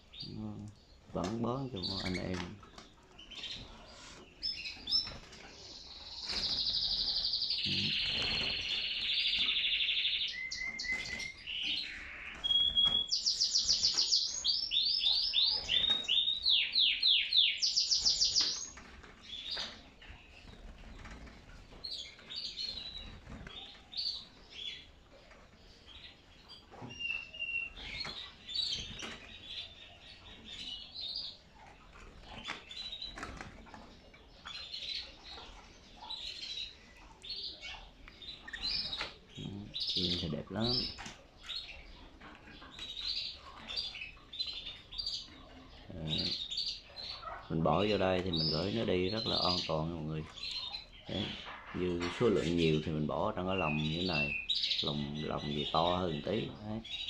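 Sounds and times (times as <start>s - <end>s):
birds chirping and calling: 0.0s - 57.0s
canary singing rolling trills: 0.0s - 57.0s.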